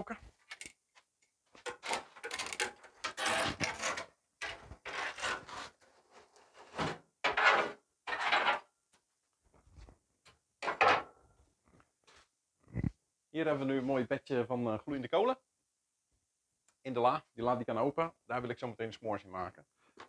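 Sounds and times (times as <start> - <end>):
coals being raked and scraped: 3.1 - 6.6.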